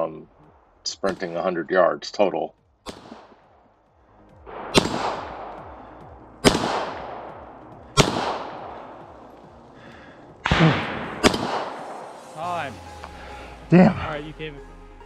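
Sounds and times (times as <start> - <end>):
pistol shots with echo: 2.8 - 3.4, 4.5 - 9.1, 10.4 - 12.0.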